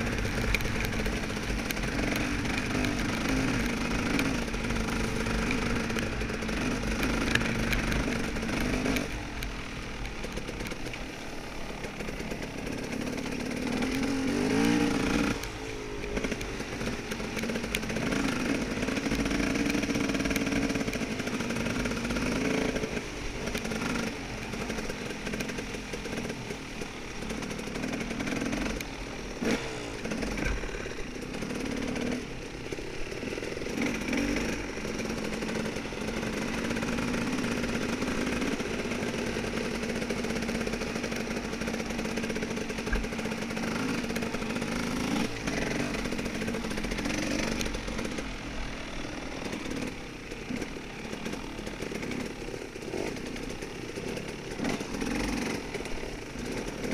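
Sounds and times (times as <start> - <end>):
dirt bike engine revving: 0.0 - 56.9.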